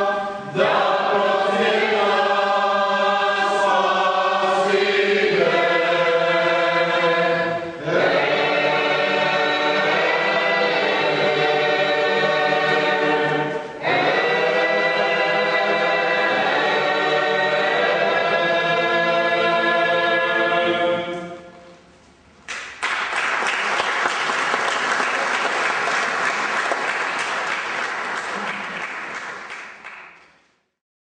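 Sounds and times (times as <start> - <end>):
choir singing church chant: 0.0 - 21.7
audience applauding: 22.5 - 30.4.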